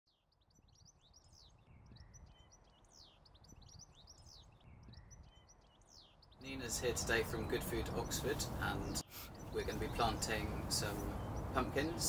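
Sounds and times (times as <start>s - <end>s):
bird chirps and whistles: 0.8s - 6.3s.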